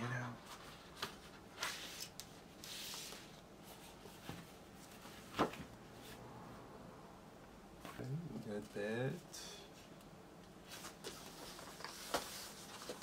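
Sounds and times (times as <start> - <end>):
soft sliding hiss: 0.2 - 6.4, 7.8 - 13.0
paper rustling: 10.6 - 13.0.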